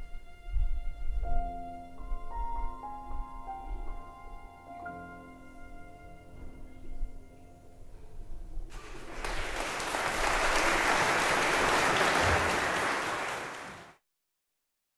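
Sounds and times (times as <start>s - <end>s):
audience applause: 8.7s - 14.0s.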